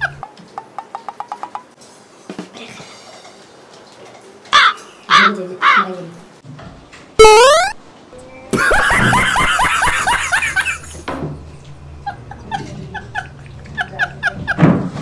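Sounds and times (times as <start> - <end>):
rising whistle sound effect: 7.2 - 7.8
short chirping notes: 7.2 - 7.8
burst of laughter: 8.6 - 11.0.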